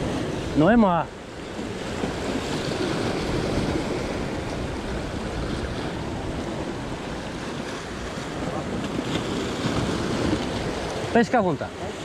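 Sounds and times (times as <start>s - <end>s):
sea waves washing: 0.0s - 12.0s
wind on microphone: 1.4s - 11.1s.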